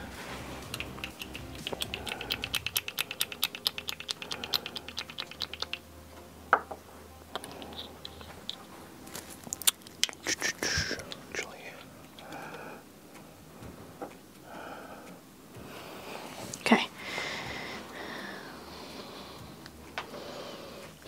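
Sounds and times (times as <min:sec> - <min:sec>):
rapid light clicks: 0:00.6 - 0:05.8.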